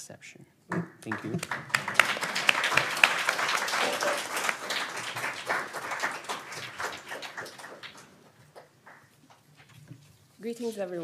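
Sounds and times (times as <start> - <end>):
audience applauding: 0.7 - 9.5.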